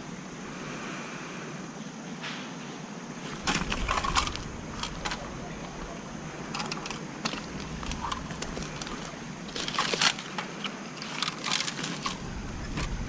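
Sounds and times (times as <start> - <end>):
footsteps on gravel and leaves: 6.6 - 10.6.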